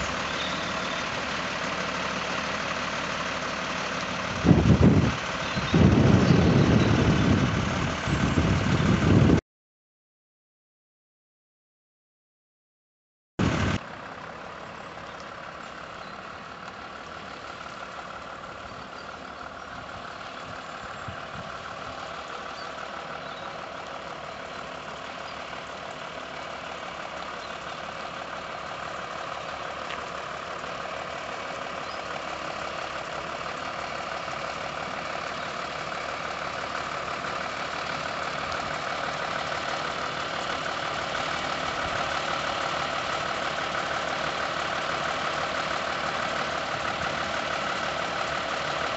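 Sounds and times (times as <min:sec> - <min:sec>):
diesel lorry engine running: 0:00.0 - 0:09.4, 0:13.4 - 0:48.9.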